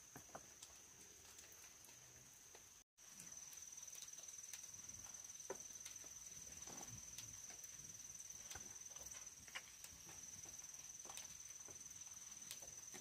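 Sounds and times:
high insect drone: 3.0 - 13.0.

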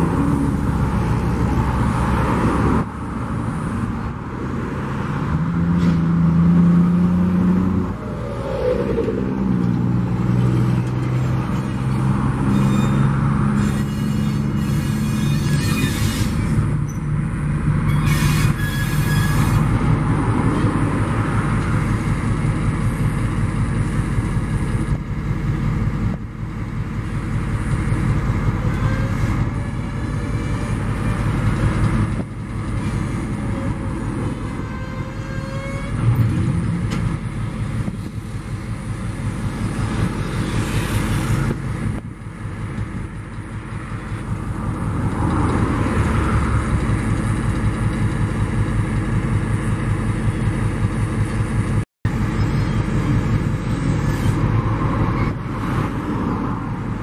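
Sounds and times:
diesel locomotive engine running: 0.0 - 57.0
wheels squealing: 8.0 - 17.2, 17.8 - 20.8, 28.3 - 37.0, 39.4 - 41.9, 52.1 - 55.9.

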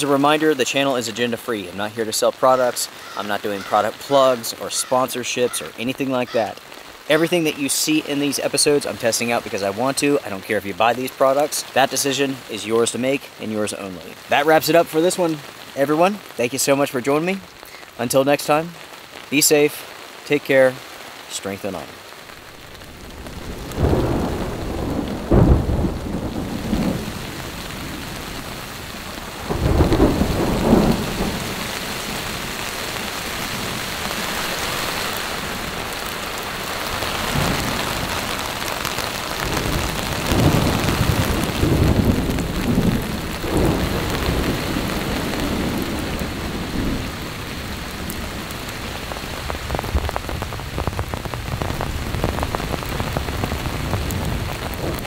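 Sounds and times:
heavy rain: 0.0 - 55.0
low rolls of thunder: 22.5 - 33.8, 37.0 - 55.0.

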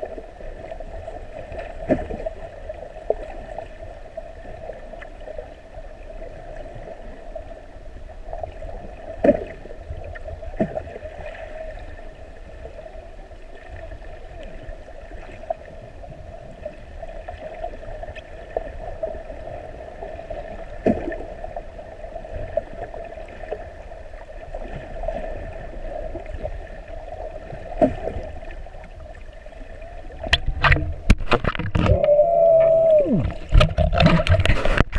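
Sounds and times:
water splashing and bubbling: 0.0 - 34.9
muffled underwater hum: 25.3 - 34.9.

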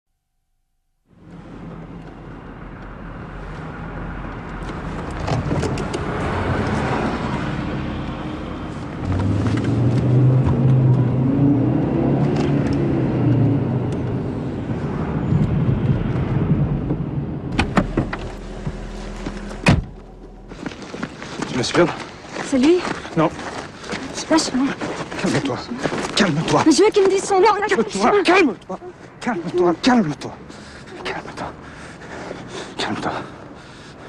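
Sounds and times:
car engine running: 17.5 - 22.1.

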